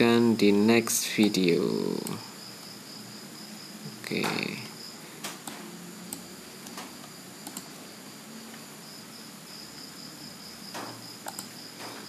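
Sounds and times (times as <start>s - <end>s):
computer mouse clicking: 5.2s - 7.7s, 10.7s - 12.0s.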